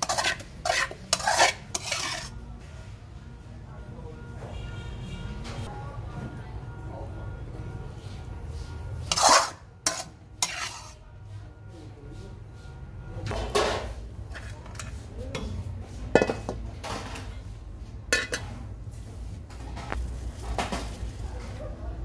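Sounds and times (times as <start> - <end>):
metal spatula scraping a wok: 0.0 - 2.4, 9.0 - 11.1, 18.1 - 18.7.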